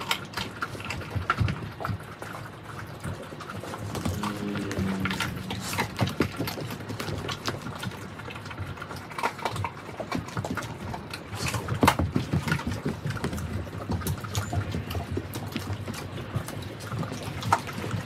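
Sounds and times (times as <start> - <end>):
dogs chewing wet smacking: 0.0 - 18.0
bone crunching: 3.3 - 13.3
short low pitched sound: 4.1 - 6.0.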